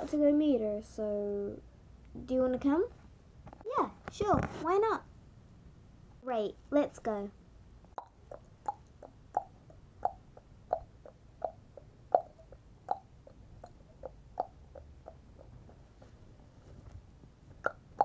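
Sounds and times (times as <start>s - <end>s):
tongue clicks imitating hoofbeats: 7.9s - 15.8s, 17.6s - 18.0s.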